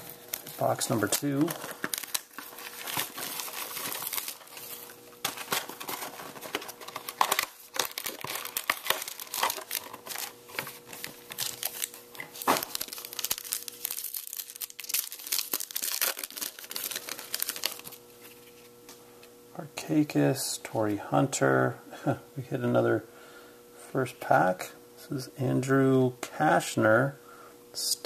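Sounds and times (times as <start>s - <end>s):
foil wrapper crinkling and tearing: 0.0s - 18.4s.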